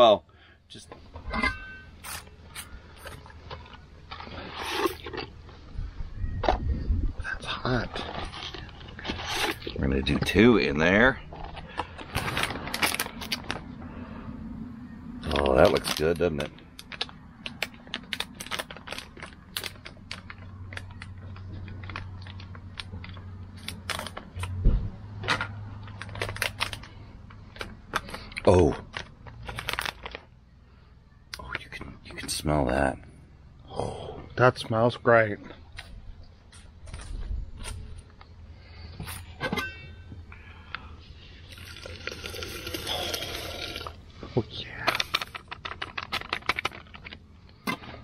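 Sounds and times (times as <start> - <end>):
low steady hum: 0.0 - 48.0
packet clicks crinkles and rustles: 2.0 - 5.8, 7.3 - 13.9, 15.2 - 30.4, 40.8 - 48.0
water boiling: 41.5 - 44.0.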